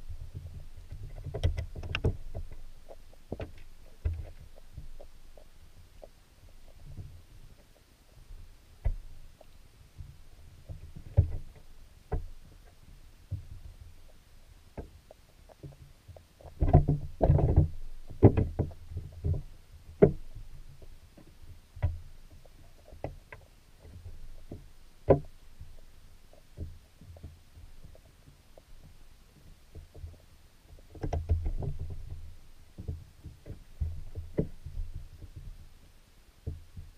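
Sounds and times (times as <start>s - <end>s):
underwater knocks and clicks: 0.0s - 35.7s, 36.4s - 36.9s
underwater thumps: 14.8s - 25.8s, 30.8s - 35.6s.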